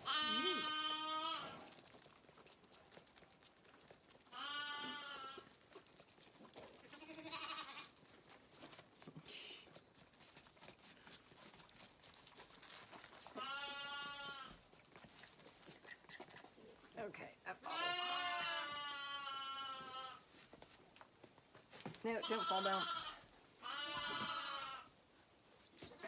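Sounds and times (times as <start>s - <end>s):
lamb bleating: 0.0s - 1.6s, 4.3s - 5.5s, 6.9s - 7.9s, 13.4s - 14.6s, 17.7s - 20.2s, 22.2s - 24.9s.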